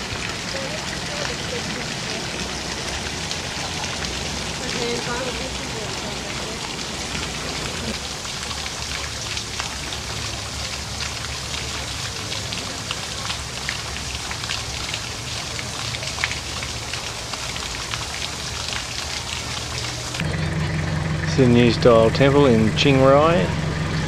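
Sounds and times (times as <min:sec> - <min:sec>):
water drops pattering: 0:00.0 - 0:20.3
low hum: 0:20.2 - 0:24.0.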